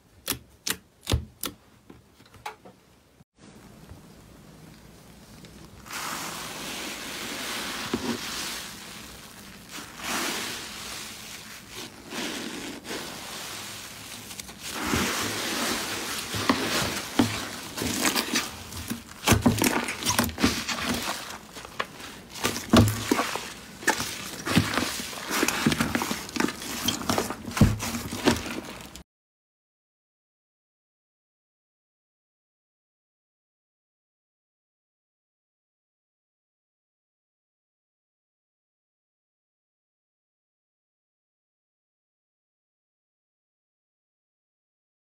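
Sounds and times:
slime crackling and tearing: 8.2 - 29.0.

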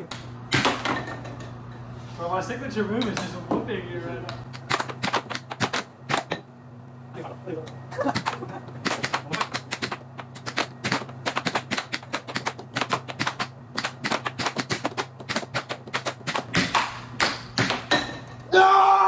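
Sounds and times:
steady low hum: 0.0 - 19.0
air hockey puck clacking: 4.6 - 6.4, 8.1 - 18.2.

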